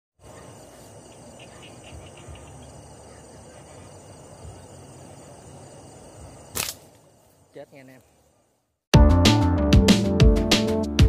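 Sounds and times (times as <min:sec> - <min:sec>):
crickets chirping: 0:00.2 - 0:08.9.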